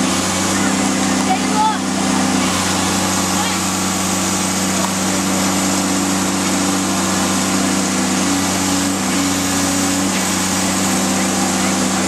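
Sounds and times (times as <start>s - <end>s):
machinery engine droning: 0.0s - 12.0s.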